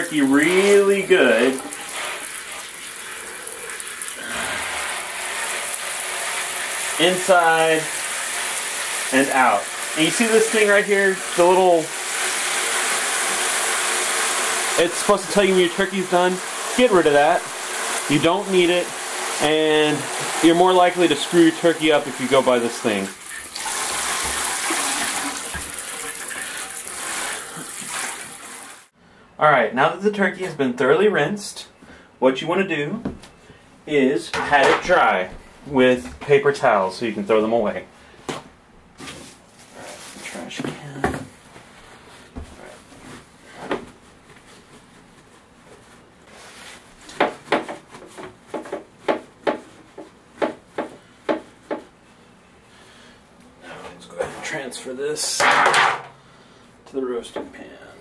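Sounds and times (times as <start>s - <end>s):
shower head spraying water: 0.0s - 28.9s.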